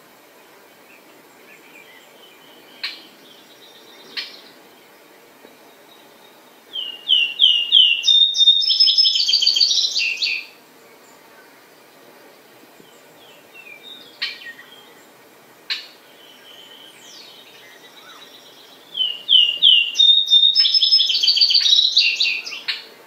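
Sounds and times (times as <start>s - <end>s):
sparrow singing: 5.7s - 10.5s, 15.7s - 22.9s.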